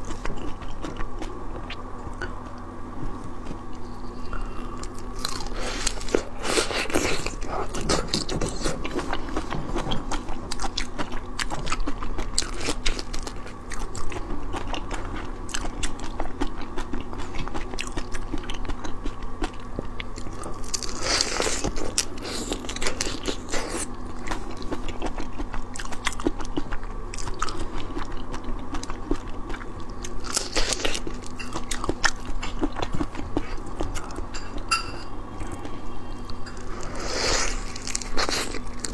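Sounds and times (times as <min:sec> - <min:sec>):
crunching shrimp shells: 0:37.2 - 0:38.9.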